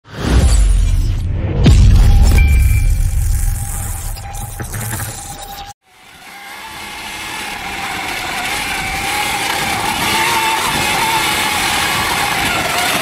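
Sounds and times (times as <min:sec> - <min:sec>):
electric motor whining: 0:05.9 - 0:13.0.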